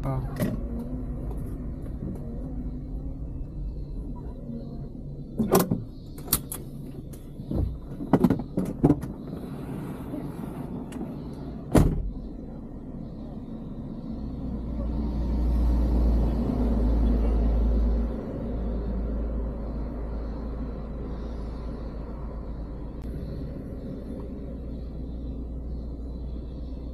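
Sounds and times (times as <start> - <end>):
low rumble: 0.0 - 26.9
van door clicks and clunks: 5.3 - 9.5, 10.2 - 12.3
heavy thump: 11.7 - 12.1.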